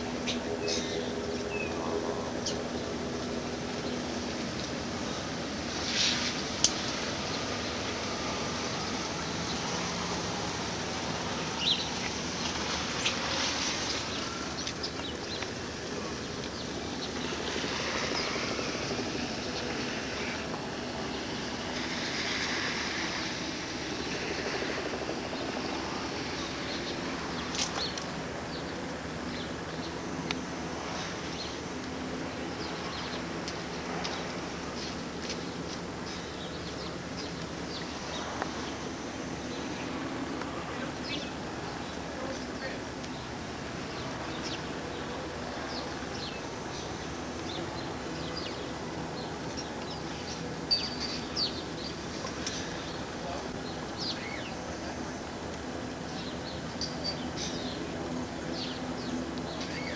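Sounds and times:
outdoor background hiss: 0:00.0 - 0:59.9
small birds chirping: 0:40.7 - 0:55.1, 0:55.8 - 0:59.9.

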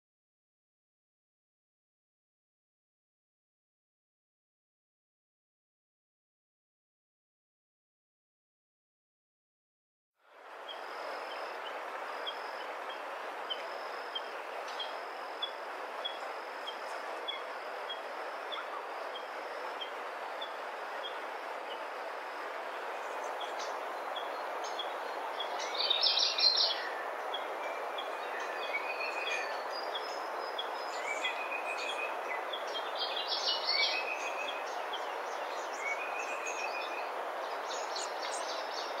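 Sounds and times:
steady forest hiss: 0:10.2 - 0:39.0
birds chirping: 0:10.6 - 0:39.0
whistled bird notes: 0:12.2 - 0:21.8, 0:23.0 - 0:37.1.

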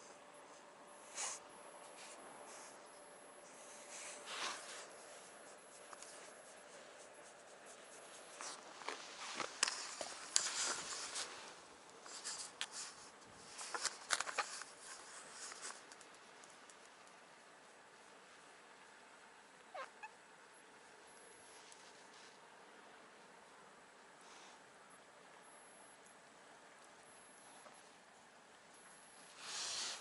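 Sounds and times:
scratchy rubbing on microphone: 0:03.6 - 0:11.5.

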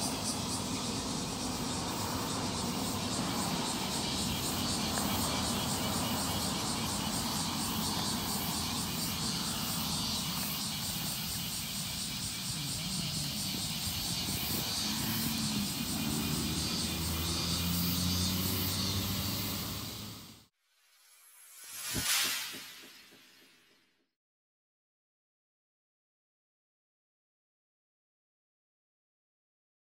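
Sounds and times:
cicadas singing: 0:00.0 - 0:20.5.

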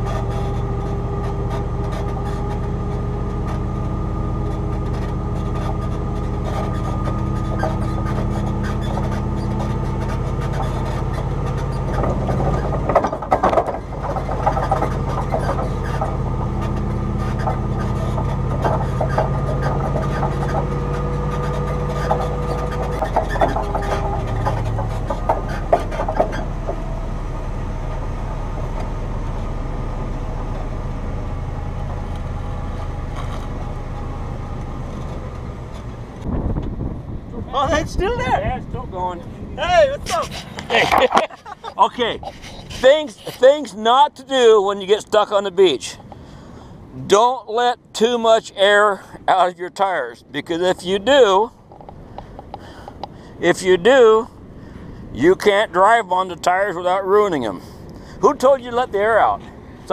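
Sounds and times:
knocks and rattles: 0:00.0 - 0:29.5, 0:50.7 - 0:53.2
tow truck engine running: 0:00.0 - 0:59.9.

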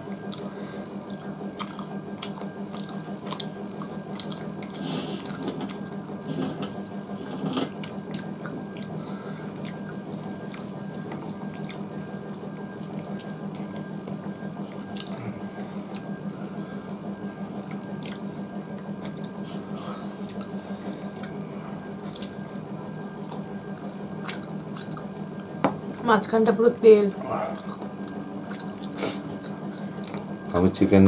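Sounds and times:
steady low hum: 0:00.0 - 0:31.0
chewing: 0:00.1 - 0:16.4, 0:17.5 - 0:25.2, 0:27.1 - 0:30.5.

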